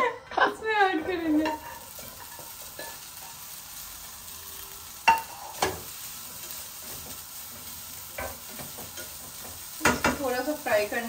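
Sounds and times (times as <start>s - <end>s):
food sizzling in a frying pan: 0.0s - 11.0s
metal utensil knocking on pan: 8.2s - 10.2s.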